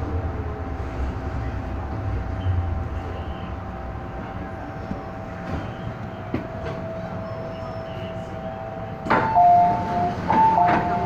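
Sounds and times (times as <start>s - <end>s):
train whine: 0.0s - 11.0s
train doors knocking open: 9.0s - 11.0s
two-tone door chime: 9.1s - 11.0s.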